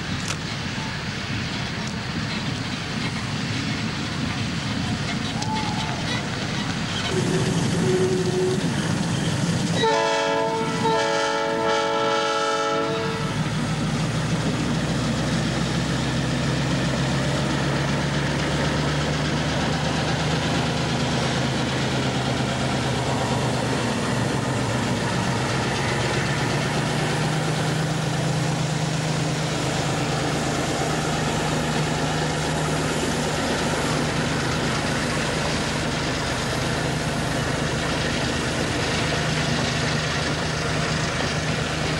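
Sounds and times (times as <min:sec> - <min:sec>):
diesel locomotive engine running: 0:00.0 - 0:41.9
locomotive air horn blasts: 0:07.1 - 0:08.6, 0:09.8 - 0:13.4.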